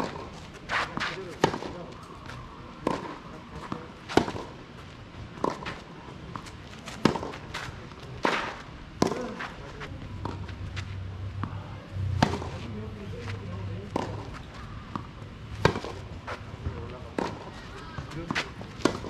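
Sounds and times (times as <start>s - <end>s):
racket hitting tennis ball: 0.0s - 1.8s, 2.8s - 4.6s, 5.4s - 9.6s, 12.2s - 12.7s, 13.9s - 16.4s, 17.1s - 19.0s
tennis ball bouncing: 0.0s - 4.6s, 5.2s - 12.7s, 13.8s - 19.0s
shoes scuffing on clay: 0.1s - 2.4s.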